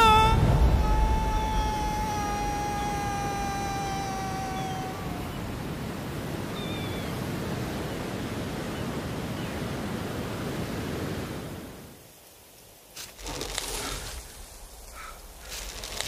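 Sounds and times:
held note: 0.0 - 3.3
sea surf: 0.0 - 12.0
wind: 0.0 - 16.0.

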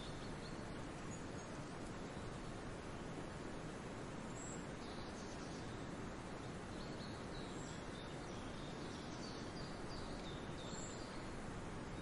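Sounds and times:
faint high bird chirps: 0.0 - 1.6
forest hiss: 0.0 - 12.0.

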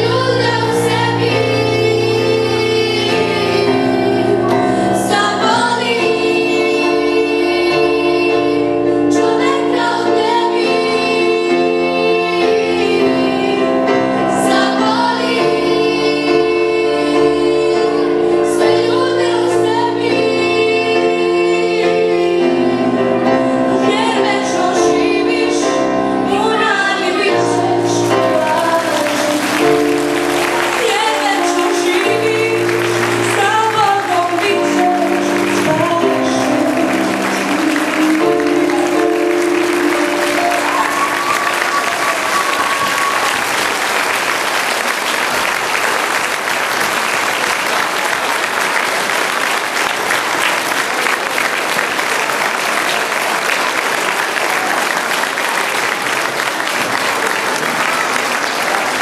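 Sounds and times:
girl singing into microphone: 0.0 - 22.7, 23.5 - 29.9, 30.6 - 43.2
instrumental backing music: 0.0 - 43.4
children's choir: 0.0 - 59.0.

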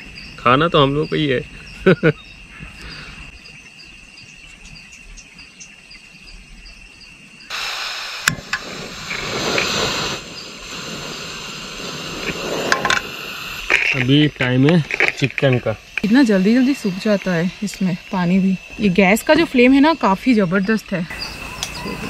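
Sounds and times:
crickets chirping: 0.0 - 22.0
loud hiss: 7.4 - 22.0
sharp click: 8.2 - 8.6.

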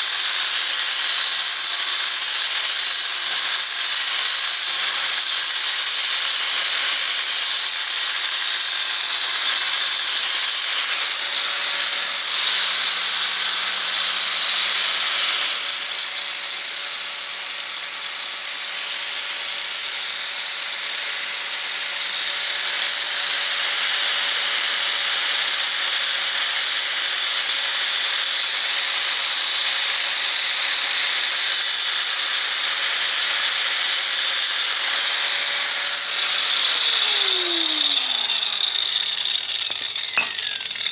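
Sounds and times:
angle grinder cutting brick: 0.0 - 40.9.

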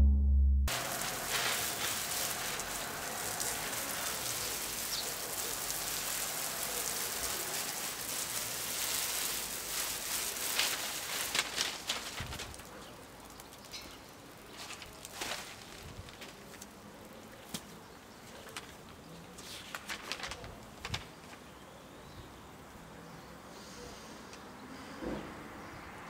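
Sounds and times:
water spraying onto leaves: 0.7 - 18.8.

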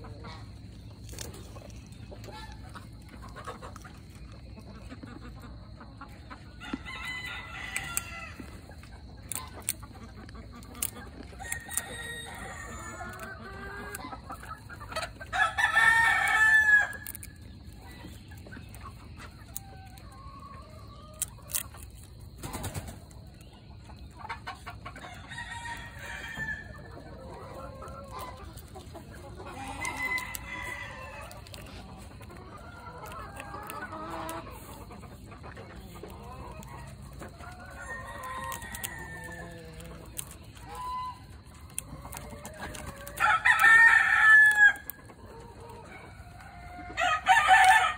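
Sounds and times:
chickens clucking: 0.0 - 47.9
rooster crowing: 6.6 - 8.4, 11.4 - 13.3, 25.1 - 26.8, 29.5 - 31.6, 43.2 - 45.0, 45.9 - 47.9.

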